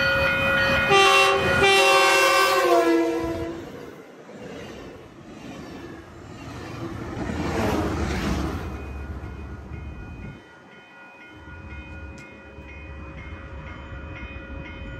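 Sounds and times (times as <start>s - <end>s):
crossing warning bell ringing: 0.0s - 3.8s, 8.3s - 14.9s
train passing at speed: 0.0s - 14.9s.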